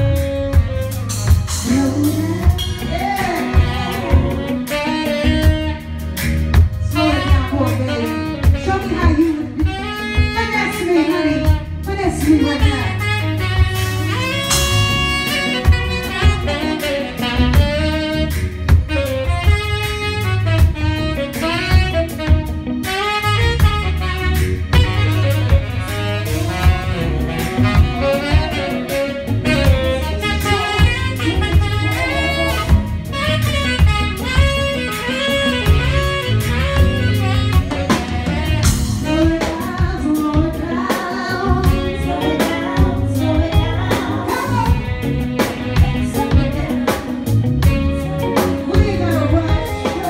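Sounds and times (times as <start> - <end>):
bass: 0.0 - 50.0
keyboard: 0.0 - 50.0
tenor saxophone solo: 0.0 - 50.0
drum beat: 11.5 - 50.0.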